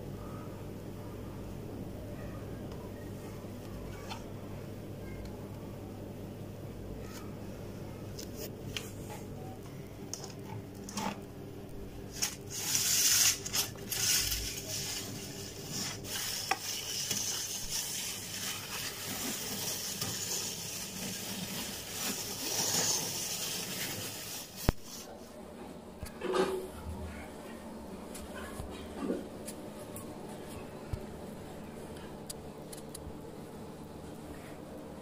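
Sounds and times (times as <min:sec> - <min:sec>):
plastic reel rubbing and scraping: 0:12.1 - 0:25.2.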